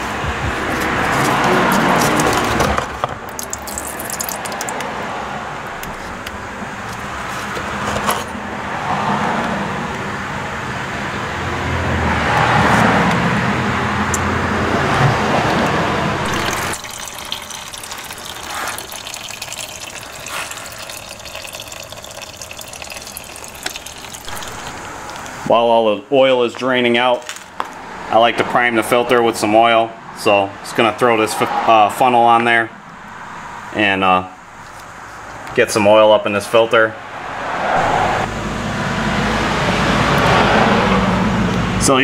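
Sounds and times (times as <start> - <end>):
oil pouring into a pan: 3.3 - 4.8, 16.3 - 25.4.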